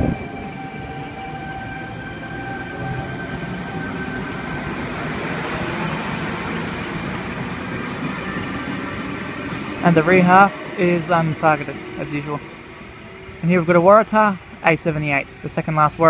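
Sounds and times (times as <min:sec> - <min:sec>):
electric train whine: 0:00.0 - 0:15.7
train wheels rumbling on rails: 0:00.0 - 0:15.7.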